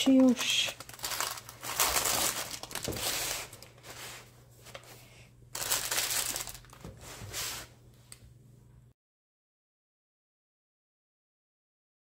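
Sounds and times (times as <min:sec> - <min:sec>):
baking paper crinkling: 0:00.0 - 0:07.7.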